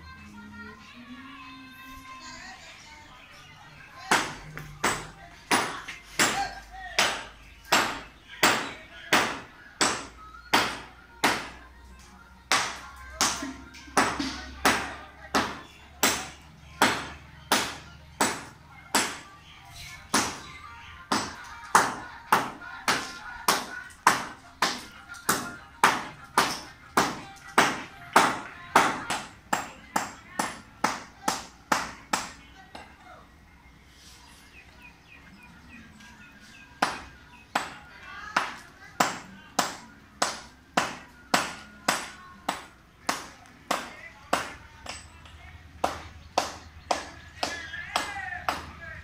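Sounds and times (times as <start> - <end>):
hammer striking masonry: 4.1 - 11.6, 12.5 - 13.4, 14.0 - 19.3, 20.1 - 20.5, 21.1 - 32.9, 36.8 - 37.8, 38.4 - 45.2, 45.8 - 48.8.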